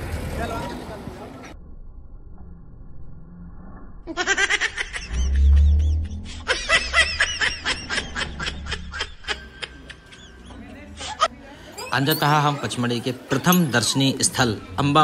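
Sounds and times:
low rumble: 1.6s - 4.1s, 5.1s - 9.3s
laughter in bursts: 4.1s - 11.3s.

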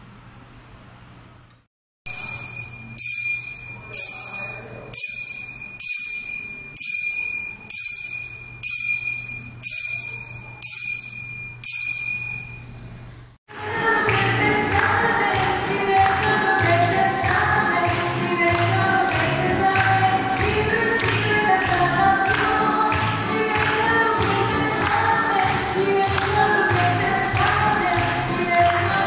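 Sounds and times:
altar bells jingling: 2.1s - 12.8s.

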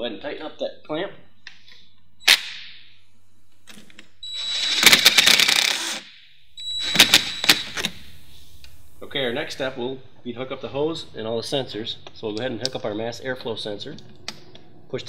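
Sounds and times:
cordless drill whining: 4.2s - 8.6s
sharp clicks: 6.7s - 8.0s.

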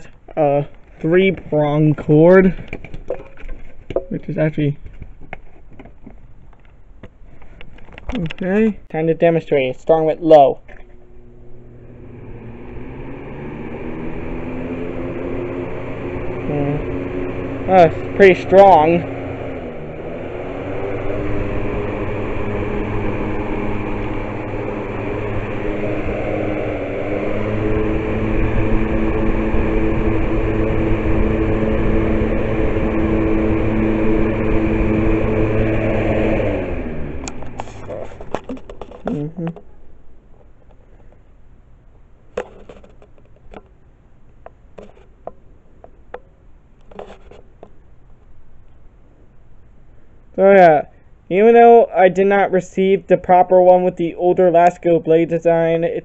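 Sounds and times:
box fan rushing air: 0.0s - 41.5s, 42.2s - 56.0s
low motor hum: 0.0s - 56.0s
sharp clicks and knocks: 37.2s - 39.7s, 42.3s - 43.8s.

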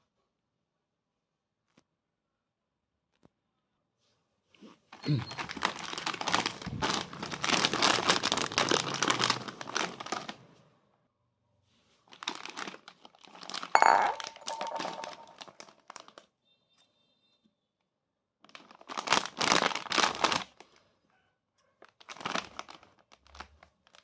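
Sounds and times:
snack packets crinkling: 5.0s - 10.5s, 12.1s - 13.7s, 14.5s - 16.2s, 18.5s - 20.8s, 21.9s - 24.0s.

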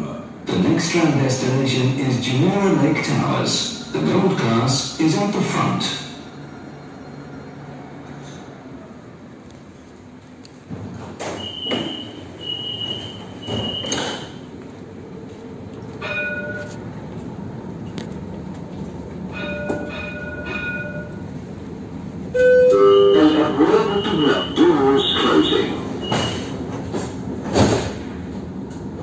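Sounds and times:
tram whine with wavering pitch: 18.7s - 26.2s
door chime tones: 22.4s - 24.7s
high electronic beeps: 22.7s - 24.8s.

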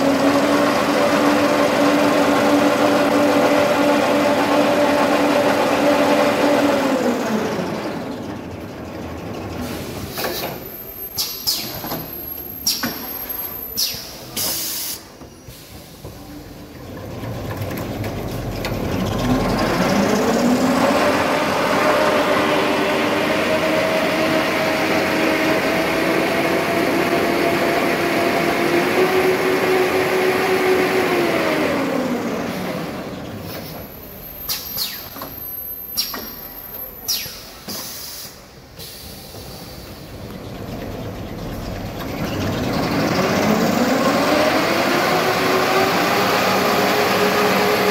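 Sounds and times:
short hiss: 13.8s - 15.1s
machine humming and whining: 18.0s - 33.4s.

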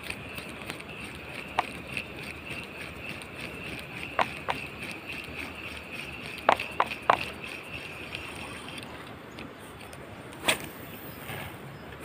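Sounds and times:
high-pitched hum: 0.0s - 8.9s.

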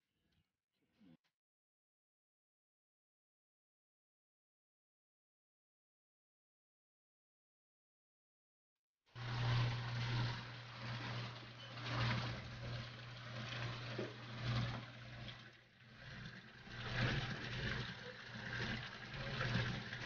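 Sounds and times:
water pouring and splashing: 9.2s - 20.0s.

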